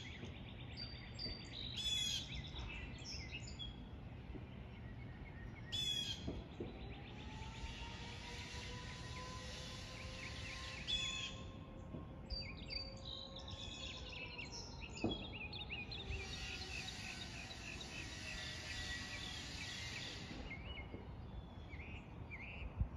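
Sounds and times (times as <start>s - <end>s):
warning siren winding down: 6.3s - 21.1s.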